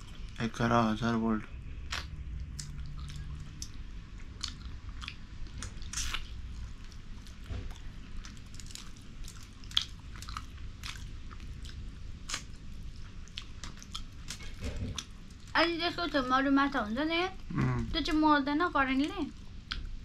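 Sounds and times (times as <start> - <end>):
person chewing food: 1.9 - 15.5.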